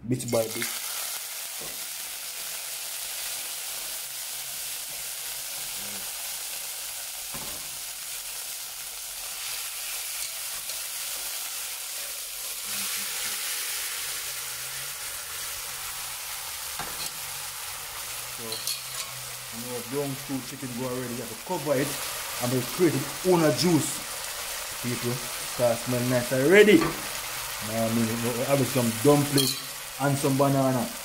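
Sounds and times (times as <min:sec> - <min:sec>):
chicken sizzling in hot oil: 0:00.3 - 0:31.0.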